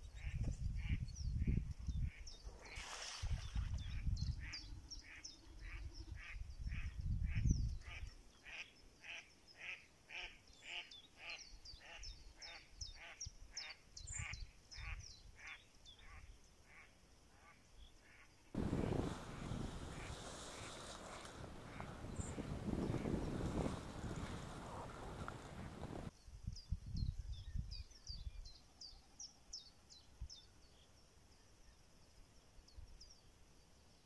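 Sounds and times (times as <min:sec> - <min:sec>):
low rumbling: 0:18.6 - 0:26.1.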